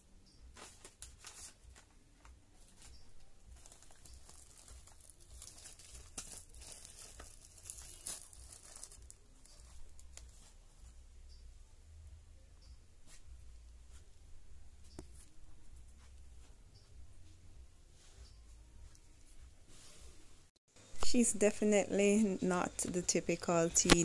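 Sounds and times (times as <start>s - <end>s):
wrapping rustling and crinkling: 0.5s - 10.9s.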